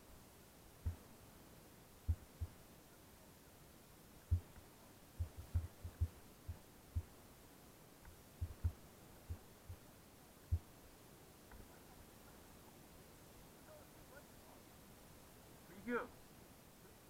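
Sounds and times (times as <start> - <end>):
faint steady hum: 0.0 - 17.0
muffled dull low thumps: 0.8 - 1.1, 2.0 - 2.6, 4.3 - 4.6, 5.2 - 7.2, 8.1 - 9.9, 10.5 - 10.8.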